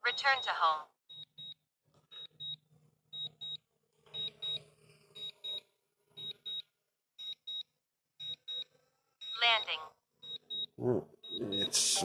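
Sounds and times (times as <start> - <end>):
high double beeps: 11.3 - 12.0.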